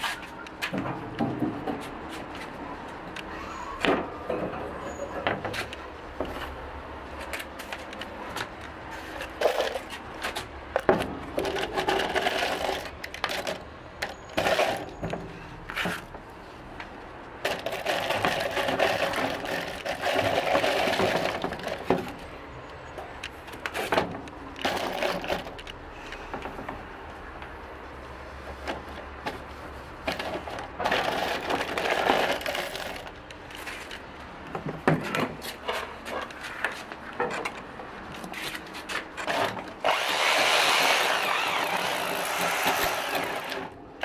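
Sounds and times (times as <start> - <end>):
screws rattling in plastic tub: 11.4 - 13.6, 17.5 - 21.8, 30.1 - 33.1.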